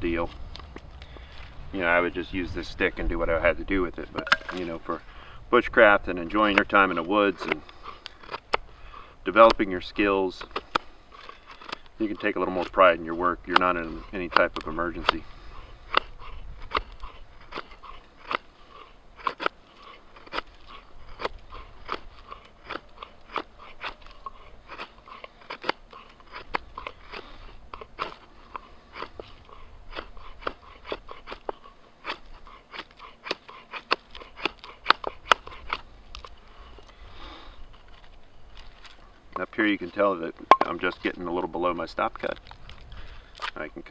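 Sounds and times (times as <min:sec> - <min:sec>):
knife slicing wood shavings: 0:09.4 - 0:36.4.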